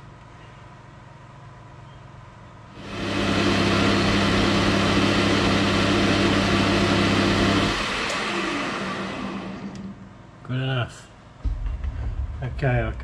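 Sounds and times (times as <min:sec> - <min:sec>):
metal lathe running: 0:02.8 - 0:10.0.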